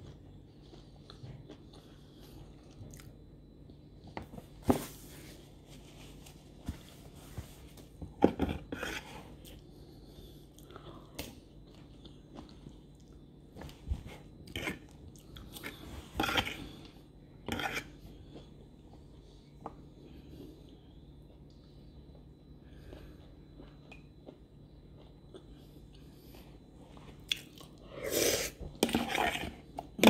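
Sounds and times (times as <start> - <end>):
person chewing wet food: 0.0 - 4.2, 8.4 - 30.0.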